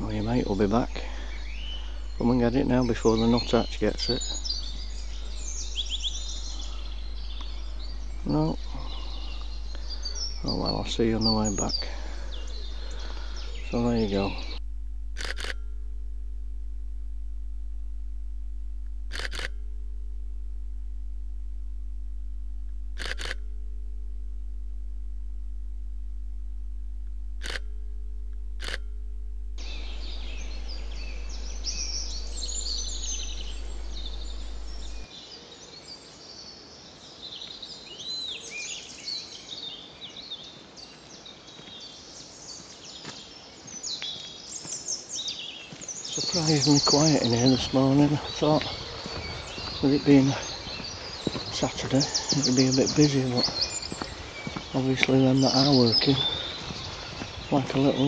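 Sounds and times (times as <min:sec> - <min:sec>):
songbirds chirping: 0:00.0 - 0:14.6, 0:29.6 - 0:58.0
steady low hum: 0:00.0 - 0:35.1, 0:46.0 - 0:58.0
camera shutter clicks: 0:15.2 - 0:15.6, 0:19.1 - 0:19.6, 0:23.0 - 0:23.4, 0:27.4 - 0:27.7, 0:28.6 - 0:28.8.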